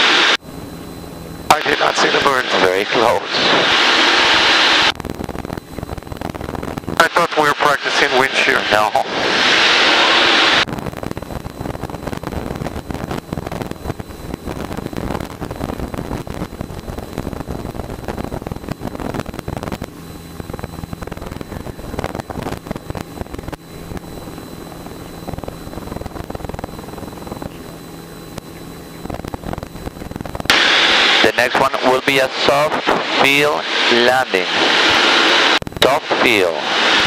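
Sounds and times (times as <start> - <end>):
propeller engine running: 0.0 - 37.0
wind buffeting microphone: 10.6 - 30.5.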